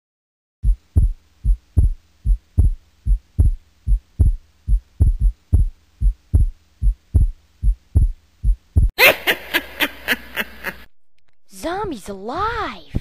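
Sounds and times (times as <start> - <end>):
heartbeat thumps: 0.6 - 8.9.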